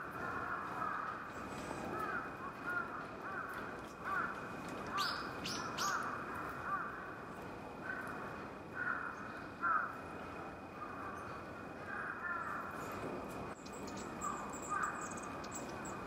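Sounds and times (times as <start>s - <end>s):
crows cawing: 0.1s - 7.2s, 7.8s - 10.0s, 10.8s - 12.8s, 14.2s - 15.2s
small bird high calls: 4.9s - 6.2s, 13.6s - 16.0s.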